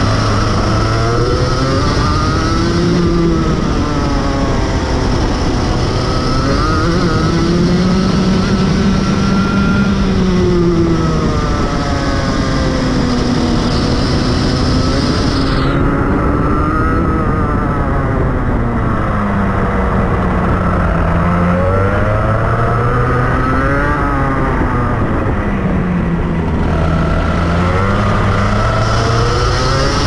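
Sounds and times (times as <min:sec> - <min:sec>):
kart engine accelerating: 0:00.0 - 0:30.0.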